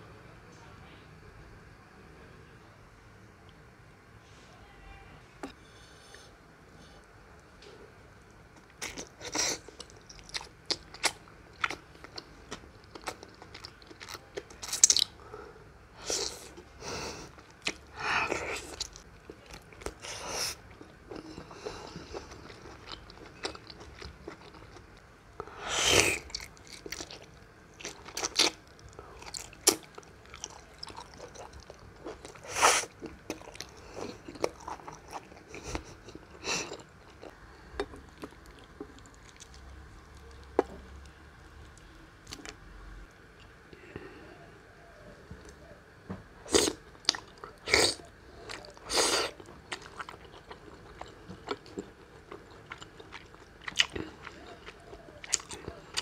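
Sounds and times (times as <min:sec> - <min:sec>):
wet chewing and mouth smacks: 0:26.1 - 0:42.6, 0:46.5 - 0:56.0.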